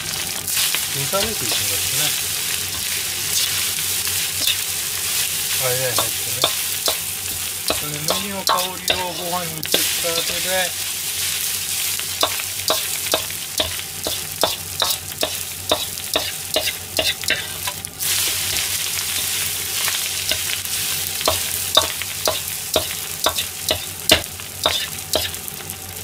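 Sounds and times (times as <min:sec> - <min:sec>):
rice sizzling in a wok: 0:00.0 - 0:26.0
metal ladle scraping a pan: 0:04.4 - 0:04.6, 0:07.7 - 0:10.5, 0:21.3 - 0:25.4.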